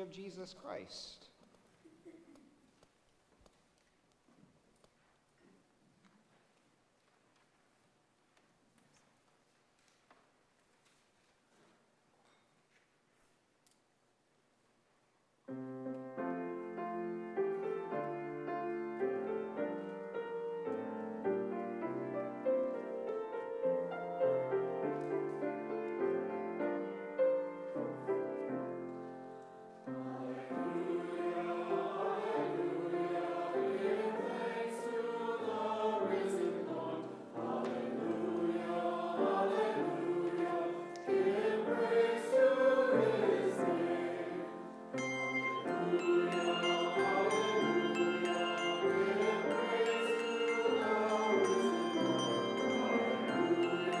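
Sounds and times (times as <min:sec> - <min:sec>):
piano: 0:15.4 - 0:54.0
choir singing: 0:16.6 - 0:54.0.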